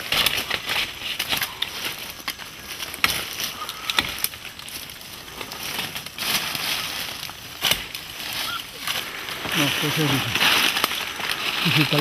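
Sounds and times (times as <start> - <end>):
rustling leaves and stems: 0.0 - 12.0
sharp wood cracks: 0.0 - 12.0.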